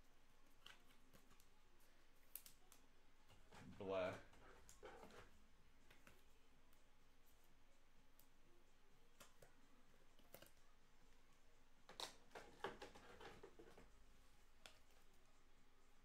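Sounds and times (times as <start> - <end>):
cards and plastic sleeves rustling: 0.3 - 6.4, 11.8 - 15.2.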